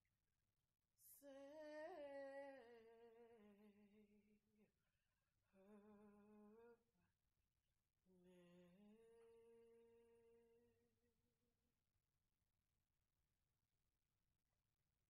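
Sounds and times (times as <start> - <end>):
woman humming softly: 8.1 - 10.7.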